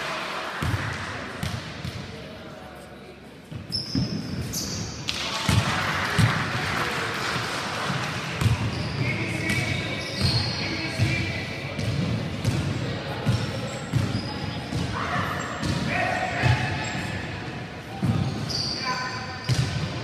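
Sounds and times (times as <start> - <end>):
voices echoing in hall: 0.0 - 20.0
sneakers squeaking: 3.4 - 5.6, 8.4 - 20.0.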